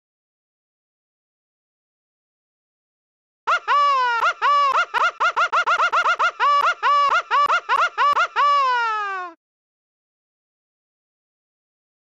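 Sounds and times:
high-pitched voice-like syllables: 3.5s - 9.4s.

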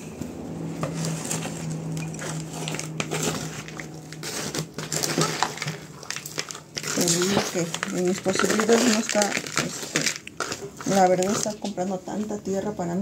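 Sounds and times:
steady low hum: 0.0s - 13.0s
scoop scraping through soil: 0.9s - 11.5s.

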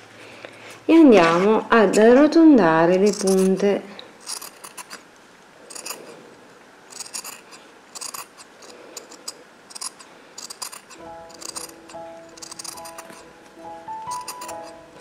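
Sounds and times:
scissors snipping fabric: 3.0s - 5.0s, 7.0s - 13.3s, 14.0s - 14.8s.

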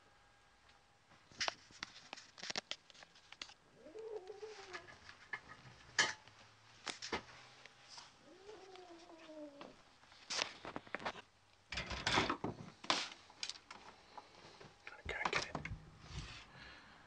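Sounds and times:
cat yowling: 3.8s - 5.0s, 8.3s - 9.8s.

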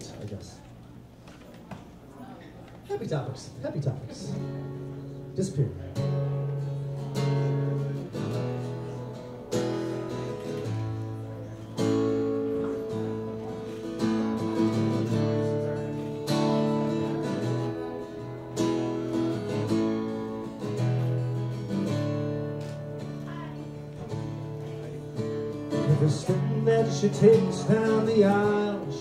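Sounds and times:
acoustic guitar strummed chords: 4.3s - 29.0s.

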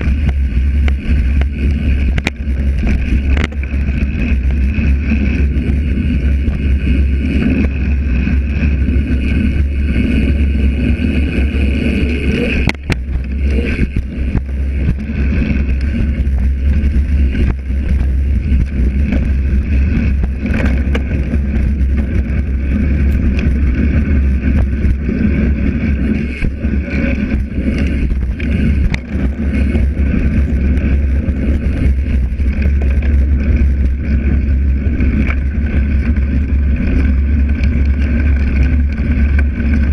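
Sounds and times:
bike frame rattling: 0.0s - 39.9s
bike tyres rumbling on dirt: 0.0s - 39.9s
wind buffeting microphone: 0.0s - 39.9s.

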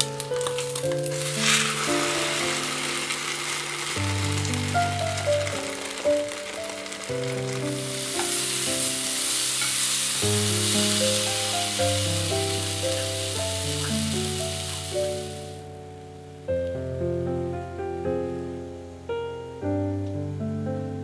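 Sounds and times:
banana sizzling in frying pan: 0.0s - 15.7s
background music of held notes: 0.0s - 21.0s.

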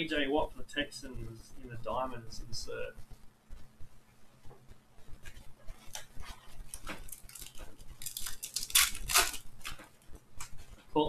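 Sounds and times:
wrapper crinkling and tearing: 5.3s - 10.6s.

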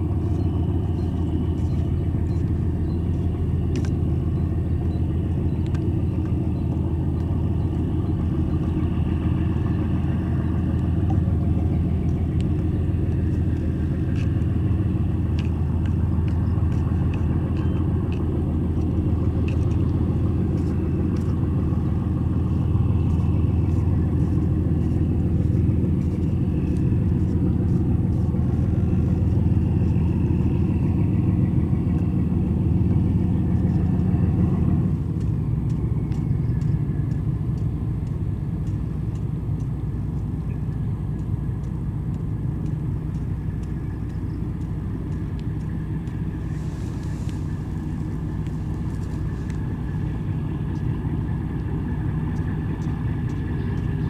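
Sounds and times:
ferry engines droning: 0.0s - 54.0s
water wash: 0.0s - 54.0s
faint clicks: 35.2s - 50.0s.

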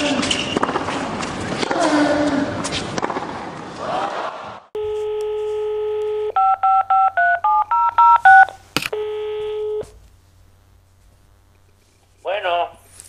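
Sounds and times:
telephone dial tone: 4.8s - 9.9s
touch-tone keypad beeps: 5.9s - 9.8s.

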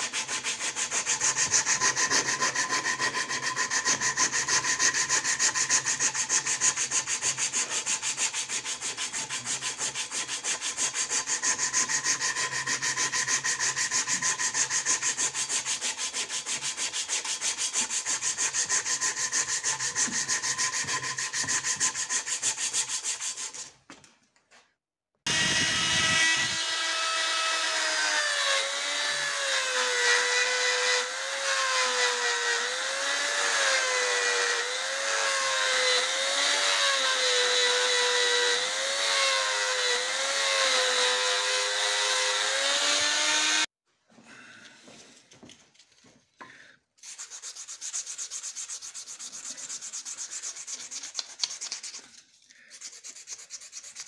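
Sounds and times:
rotary tool grinding steel: 0.0s - 23.7s, 25.3s - 43.7s
abrasive strip rasping on wood: 0.0s - 23.8s, 47.0s - 54.0s.

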